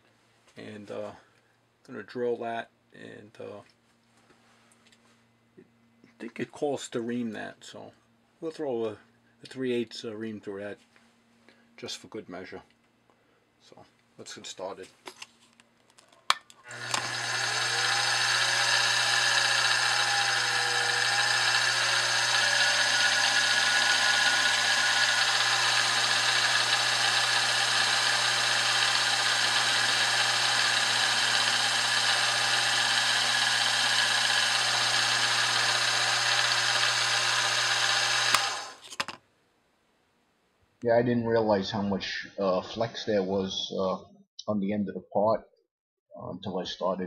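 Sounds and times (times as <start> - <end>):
milling machine spindle running: 16.7 - 38.8
drill bit cutting brass: 16.7 - 39.1.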